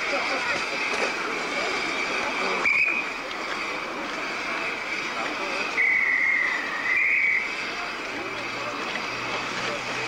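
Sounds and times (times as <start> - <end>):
shrill hand whistle blasts: 2.6 - 3.0, 5.8 - 7.5.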